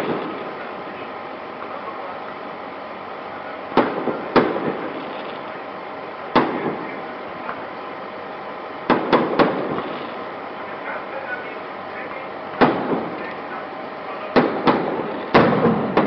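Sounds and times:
fireworks bangs with rumbling echo: 0:00.0 - 0:01.8, 0:03.5 - 0:05.5, 0:06.2 - 0:07.7, 0:08.8 - 0:10.3, 0:12.5 - 0:13.6, 0:14.2 - 0:16.0.

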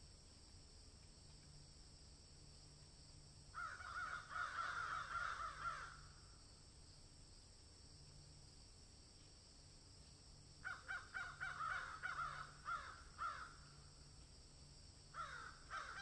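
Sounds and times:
faint background hiss: 0:00.0 - 0:16.0
caw-like animal calls: 0:03.5 - 0:06.3, 0:10.6 - 0:13.9, 0:15.1 - 0:16.0.

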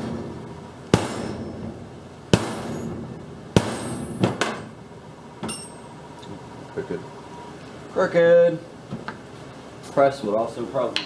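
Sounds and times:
rubber mallet strikes on metal: 0:00.9 - 0:04.7.

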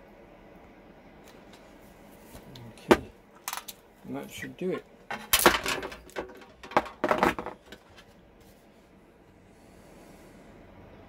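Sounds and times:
sheet-metal cone knocking and scraping: 0:05.1 - 0:08.1.

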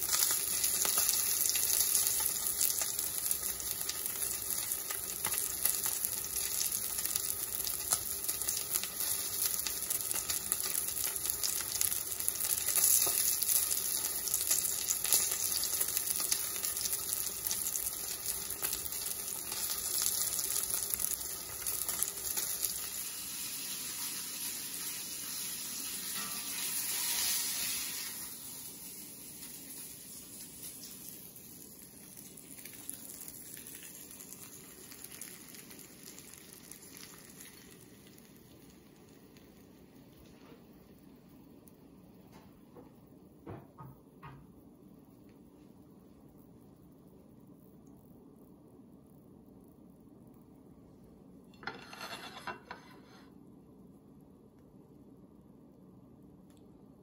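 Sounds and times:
fish sizzling in oil: 0:00.0 - 0:40.2.

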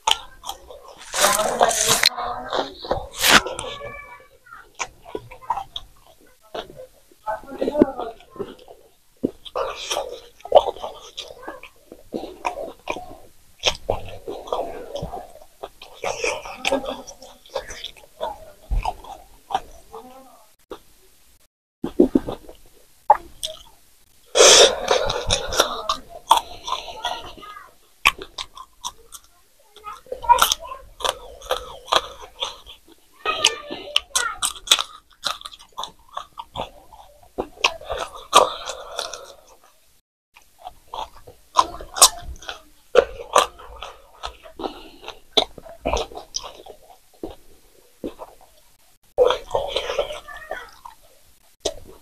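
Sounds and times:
man chewing: 0:00.0 - 0:07.2, 0:08.2 - 0:21.0, 0:21.8 - 0:52.0
mouth clicks: 0:21.8 - 0:39.8.

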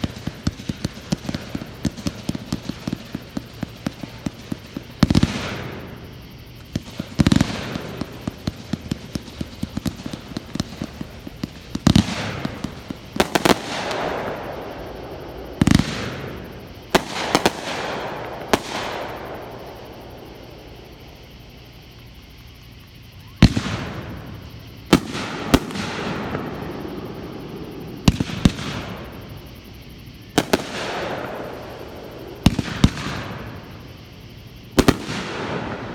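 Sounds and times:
fireworks loud bangs: 0:00.0 - 0:19.9, 0:23.3 - 0:29.5, 0:30.4 - 0:33.9, 0:34.7 - 0:35.9
fireworks popping: 0:00.0 - 0:19.9, 0:23.2 - 0:26.9, 0:30.3 - 0:34.0, 0:34.7 - 0:35.9.

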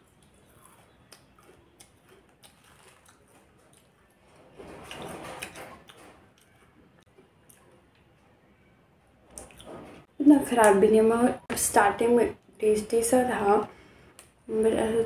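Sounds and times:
chewing crunchy snack: 0:00.0 - 0:08.1.

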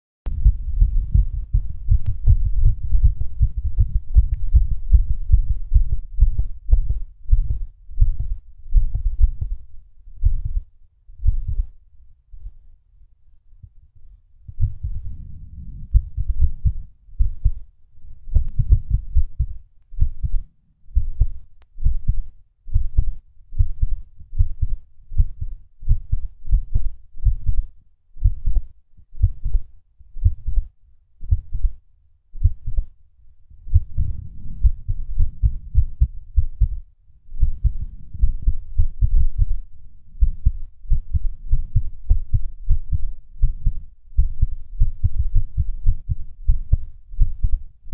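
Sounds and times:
heartbeat thuds: 0:00.3 - 0:11.7, 0:14.4 - 0:20.4, 0:21.0 - 0:31.8, 0:32.4 - 0:32.9, 0:33.7 - 0:47.6.

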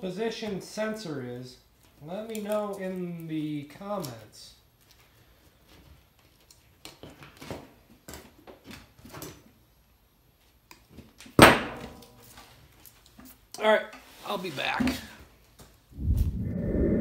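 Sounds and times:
wires and tools clicking: 0:01.8 - 0:03.3.

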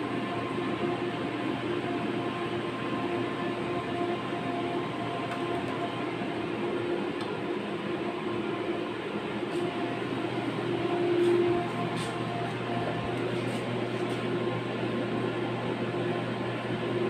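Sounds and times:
aquarium pumps humming: 0:00.0 - 0:17.0.

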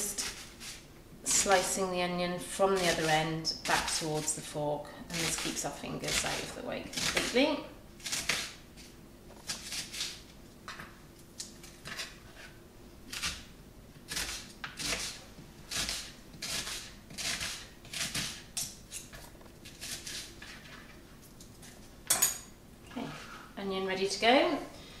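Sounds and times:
knife slicing onion on board: 0:00.2 - 0:01.7, 0:05.2 - 0:10.2, 0:11.4 - 0:13.5, 0:14.1 - 0:20.8.

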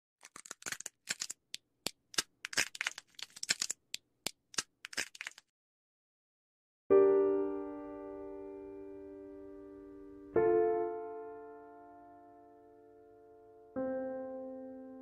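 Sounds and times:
squirrel cracking a nut: 0:00.2 - 0:05.5.

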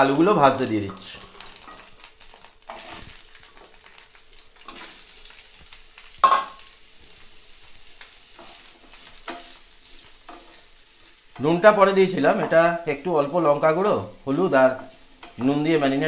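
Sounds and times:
potato sticks sizzling in oil: 0:00.0 - 0:16.0
wooden spatula scraping a pan: 0:02.7 - 0:03.3.

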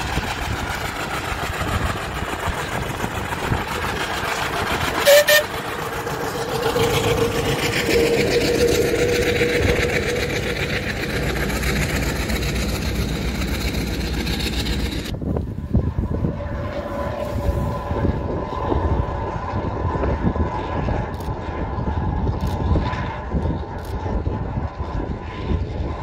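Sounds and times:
steam engine rumbling: 0:00.0 - 0:19.5
sharp whistle blasts: 0:05.0 - 0:05.5.

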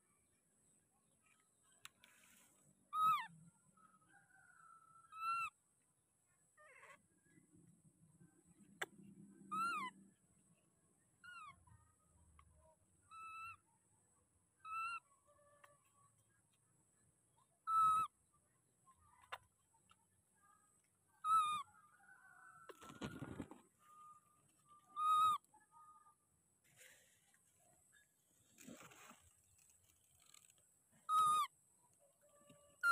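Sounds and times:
baby monkey squeaking: 0:02.9 - 0:03.3, 0:05.1 - 0:05.5, 0:09.5 - 0:10.0, 0:11.2 - 0:11.6, 0:13.0 - 0:13.7, 0:14.6 - 0:15.1, 0:17.6 - 0:18.2, 0:21.2 - 0:21.8, 0:24.8 - 0:25.5, 0:31.0 - 0:31.5.

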